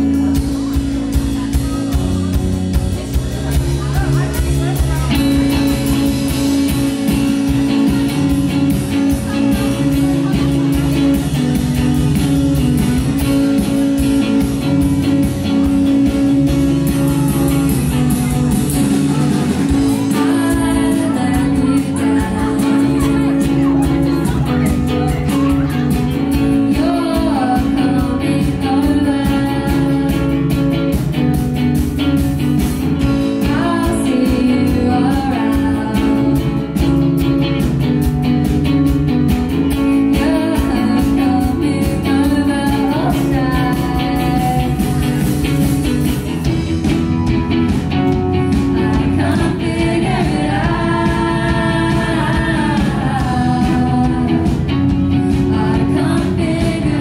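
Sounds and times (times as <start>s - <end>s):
rock band playing: 0.0s - 57.0s
woman singing: 16.8s - 31.0s, 33.0s - 37.3s, 39.7s - 45.5s, 48.3s - 57.0s.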